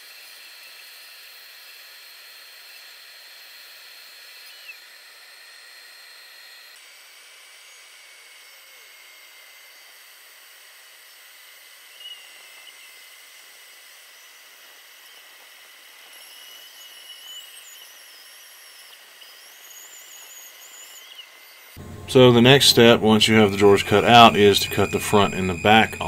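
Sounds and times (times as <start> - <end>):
faint high whine: 14.0 - 26.0
bandsaw cutting wood: 21.8 - 26.0.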